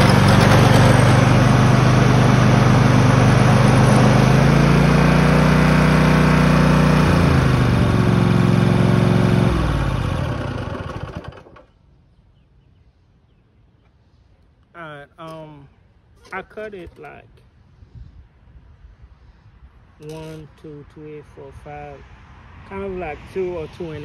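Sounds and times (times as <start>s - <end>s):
riding mower engine running: 0.0s - 11.7s.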